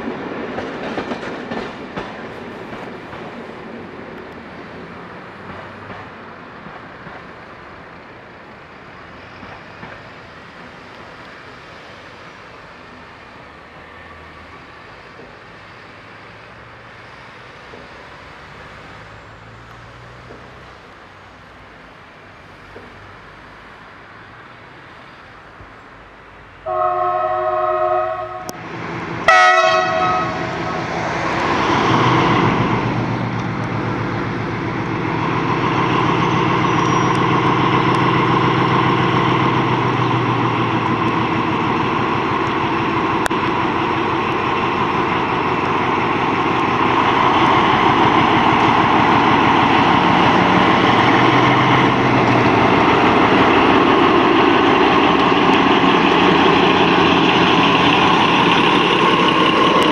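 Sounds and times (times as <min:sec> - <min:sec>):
locomotive horn: 0:26.6 - 0:28.6, 0:29.2 - 0:31.2
diesel engine running: 0:28.6 - 0:59.9.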